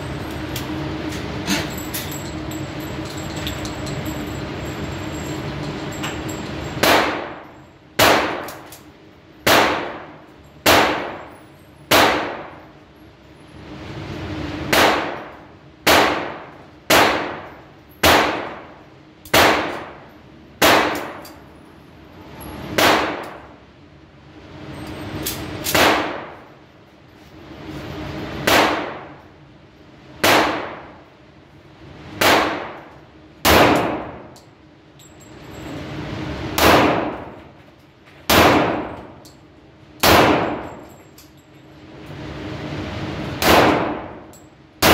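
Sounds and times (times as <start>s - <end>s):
pistol shots echoing indoors: 6.8s - 8.8s, 9.4s - 12.7s, 14.6s - 21.4s, 22.7s - 23.6s, 25.6s - 26.4s, 28.4s - 29.2s, 30.2s - 31.1s, 32.1s - 34.4s, 36.6s - 37.4s, 38.3s - 39.2s, 40.0s - 40.9s, 43.4s - 44.9s.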